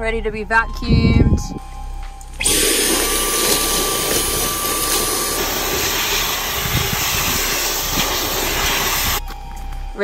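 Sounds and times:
handheld vacuum cleaner running: 2.4 - 9.2.

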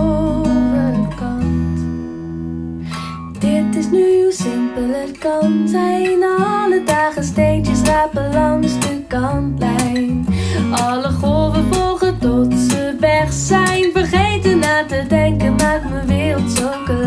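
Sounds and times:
acoustic guitar song: 0.0 - 17.0.

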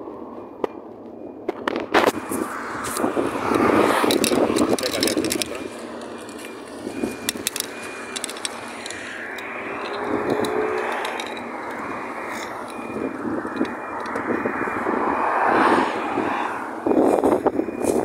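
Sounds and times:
road noise: 0.0 - 18.0
clicks and scrapes: 1.5 - 14.3
vehicle passing: 2.0 - 18.0.

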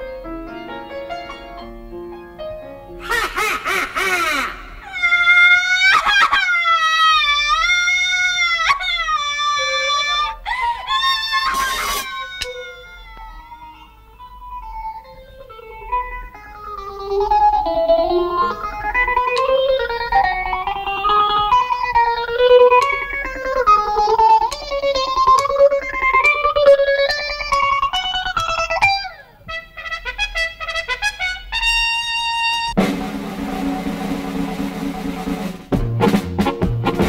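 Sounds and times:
plucked string melody: 14.1 - 30.0, 32.8 - 37.0.

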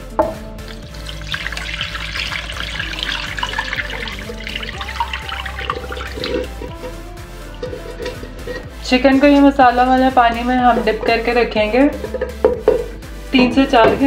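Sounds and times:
water pouring into a bowl: 0.6 - 8.7.

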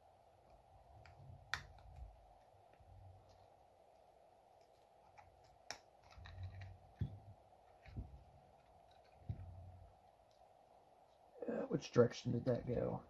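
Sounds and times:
low steady hum: 0.0 - 13.0
soft low bumps: 6.3 - 9.9.

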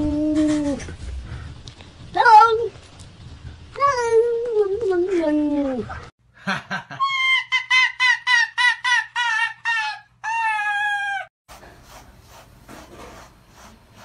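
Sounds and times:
high-pitched cries: 7.0 - 11.3
brush strokes through fur: 11.5 - 14.0.

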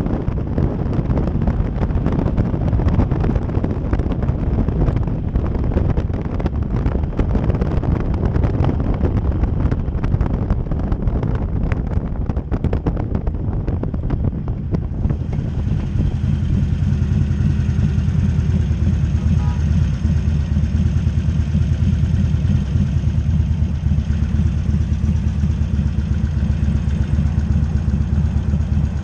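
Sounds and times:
motorcycle engine running: 0.0 - 29.0
wind buffeting microphone: 0.0 - 29.0.

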